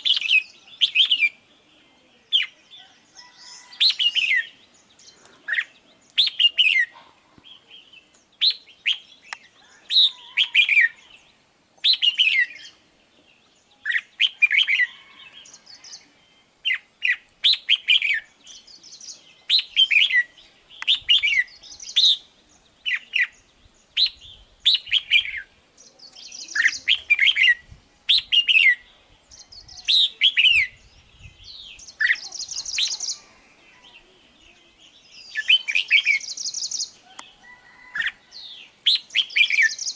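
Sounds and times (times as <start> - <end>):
bird singing warbled phrases: 0.0 - 39.9.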